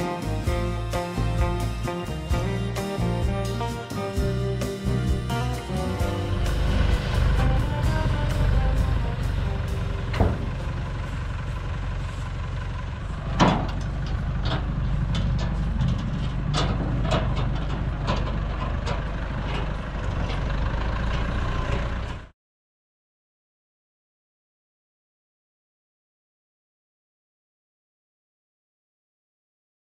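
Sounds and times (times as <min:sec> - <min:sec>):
tractor diesel engine running: 0:00.0 - 0:22.3
trailer clanking and banging: 0:00.0 - 0:22.3.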